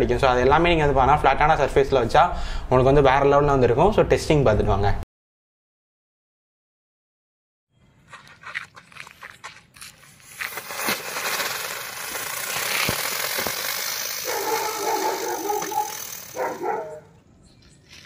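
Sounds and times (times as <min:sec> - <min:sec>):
firework crackling and hissing: 0:10.1 - 0:16.6
dog barking: 0:14.2 - 0:17.1.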